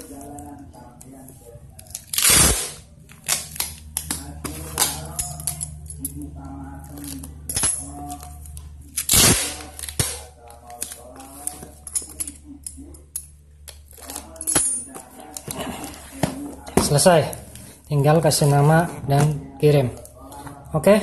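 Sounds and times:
packing tape ripping off roll: 0:02.1 - 0:03.8, 0:08.9 - 0:10.3.

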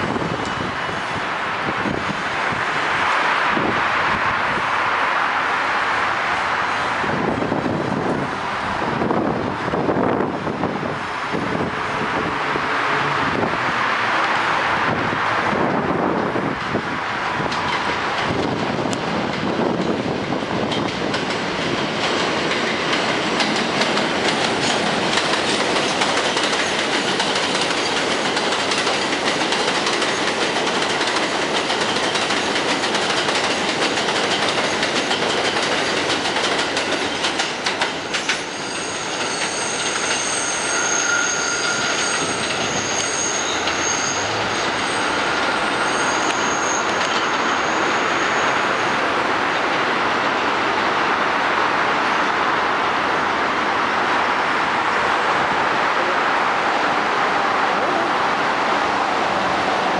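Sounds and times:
train rumbling: 0:00.0 - 0:59.9
wheels clattering over rail joints: 0:17.4 - 0:40.4
wheels squealing: 0:38.0 - 0:49.1.

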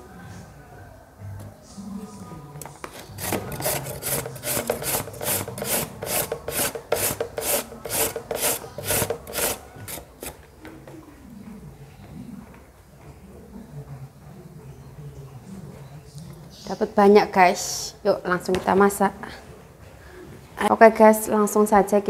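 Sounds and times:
papaya rasping on hand shredder: 0:03.0 - 0:10.4.

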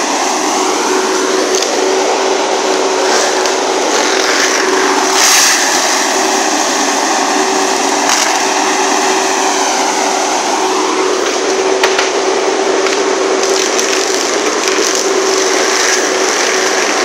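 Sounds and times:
forestry mulcher shredding wood: 0:00.0 - 0:17.0
sharp crack: 0:08.0 - 0:08.6, 0:11.2 - 0:17.0.

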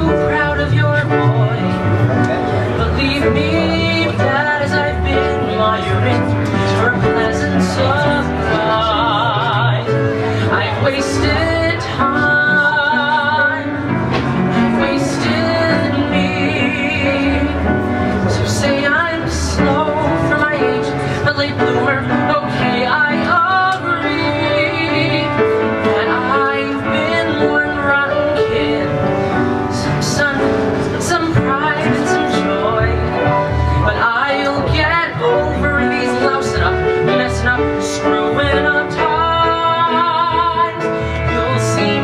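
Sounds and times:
piano accompaniment: 0:00.0 - 0:42.0
man singing a ballad: 0:02.4 - 0:28.9.

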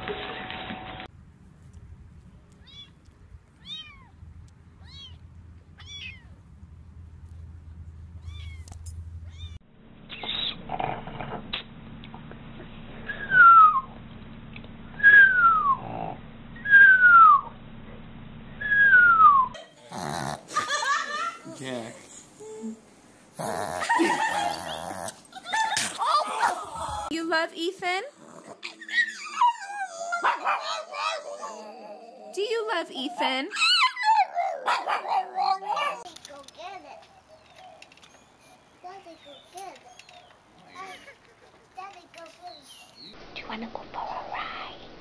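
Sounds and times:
dogs whining: 0:13.0 - 0:13.9, 0:15.0 - 0:17.5, 0:18.6 - 0:20.5, 0:23.4 - 0:27.1, 0:28.3 - 0:36.1.

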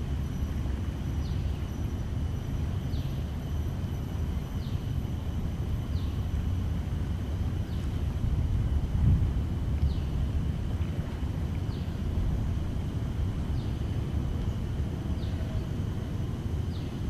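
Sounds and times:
faint high whine: 0:00.0 - 0:17.0
low steady rumble: 0:00.0 - 0:17.0.

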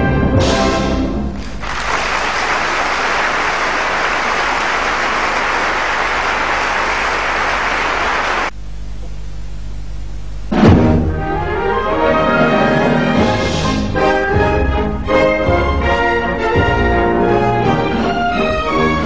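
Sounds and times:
orchestra music: 0:00.0 - 0:08.3, 0:10.5 - 0:19.0
audience applauding: 0:01.4 - 0:08.5
low hum: 0:01.4 - 0:11.8.

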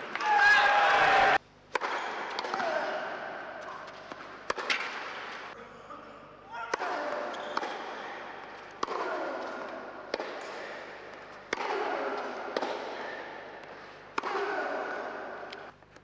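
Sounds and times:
tennis racket hitting ball: 0:01.7 - 0:03.0, 0:03.6 - 0:05.5, 0:06.7 - 0:15.7.

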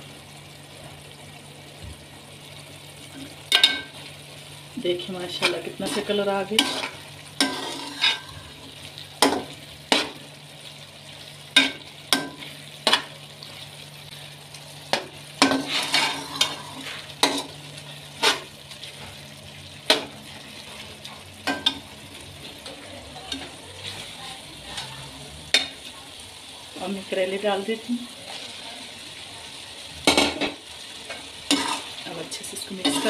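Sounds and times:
faint sizzle: 0:00.0 - 0:33.0
spoon scraping metal pot: 0:05.4 - 0:08.4, 0:15.4 - 0:17.5, 0:31.5 - 0:31.9.

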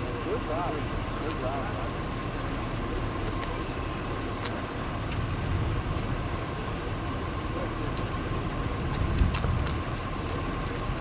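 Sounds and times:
faint steady tone: 0:00.0 - 0:11.0
wind buffeting microphone: 0:04.8 - 0:06.6, 0:08.7 - 0:11.0.

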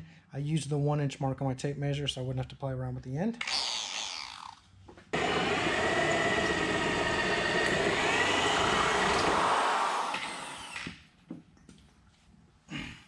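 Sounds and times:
electric drill grinding through metal: 0:03.4 - 0:04.6, 0:05.2 - 0:11.0.

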